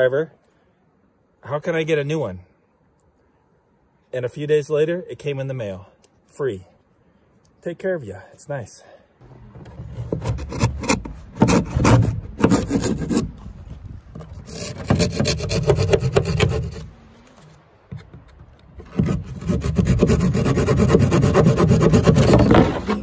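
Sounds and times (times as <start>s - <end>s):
saw cutting wooden siding: 9.2s - 13.6s, 14.2s - 17.0s, 17.9s - 23.0s.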